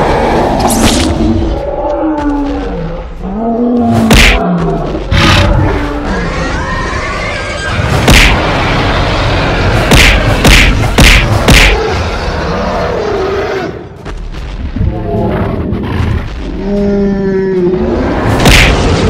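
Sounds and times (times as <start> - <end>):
heavy punch impacts: 4.1 - 4.4, 8.0 - 8.4, 9.8 - 11.8.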